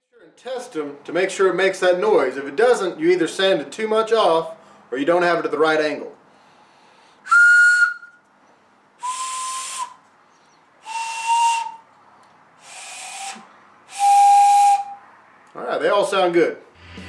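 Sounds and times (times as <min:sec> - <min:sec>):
breathy wooden whistle notes: 0:06.4 - 0:15.0.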